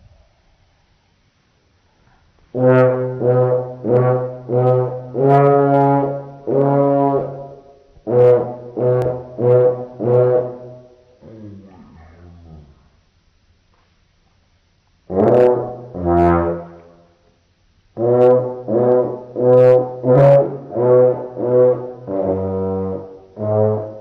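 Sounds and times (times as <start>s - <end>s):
slowed trumpet notes: 2.5s - 13.2s, 15.1s - 17.3s, 18.0s - 24.0s.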